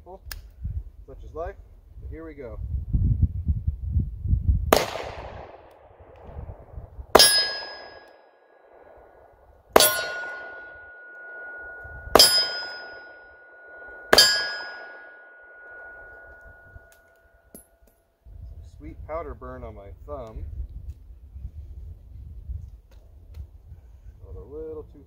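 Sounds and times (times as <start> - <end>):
steel target ringing: 7.1 - 8.2, 9.8 - 17.7
revolver shots: 9.8 - 16.3.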